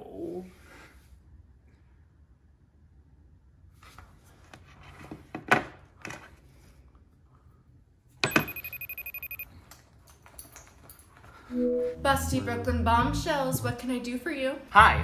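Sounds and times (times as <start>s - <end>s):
telephone ringing trill: 8.3s - 9.5s.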